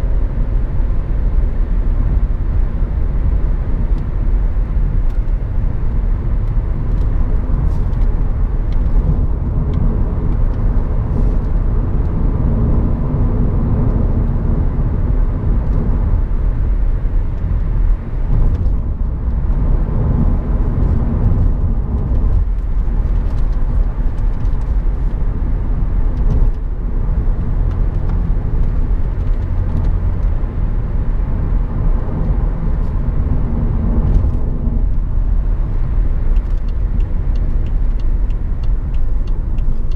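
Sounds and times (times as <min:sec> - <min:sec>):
car engine humming: 0:00.0 - 0:39.9
tyre and road rumble: 0:00.0 - 0:39.9.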